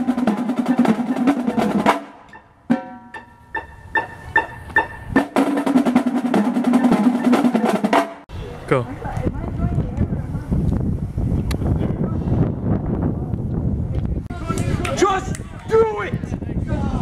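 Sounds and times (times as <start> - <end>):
marching snare drums: 0.0 - 3.1, 5.2 - 8.3.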